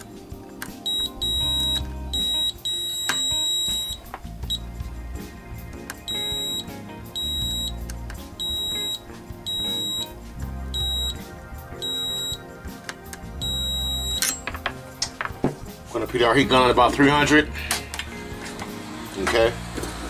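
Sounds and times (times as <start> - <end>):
multimeter continuity beeps: 0.8 - 4.7, 6.1 - 7.8, 8.4 - 12.4, 13.4 - 14.4.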